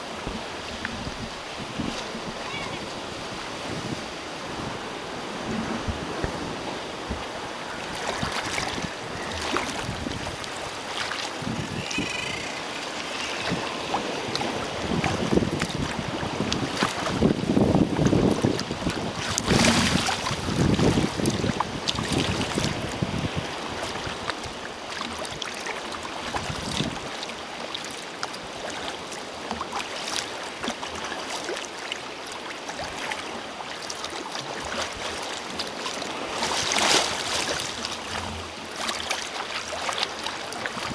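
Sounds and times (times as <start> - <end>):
wind buffeting microphone: 0.0 - 24.6
water sloshing around kayak: 0.0 - 40.9.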